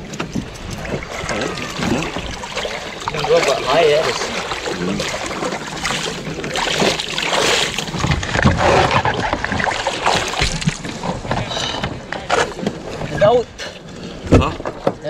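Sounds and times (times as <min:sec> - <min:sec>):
water dripping: 0:00.0 - 0:08.0
water splashing around a kayak hull: 0:00.0 - 0:15.0.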